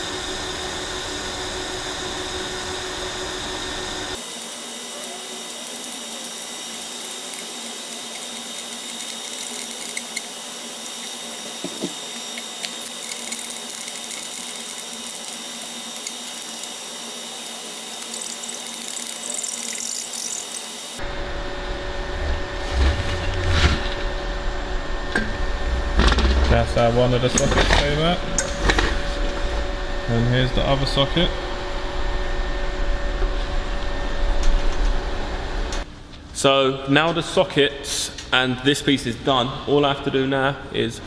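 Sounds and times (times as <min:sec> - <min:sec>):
low rumbling: 0:21.0 - 0:28.4.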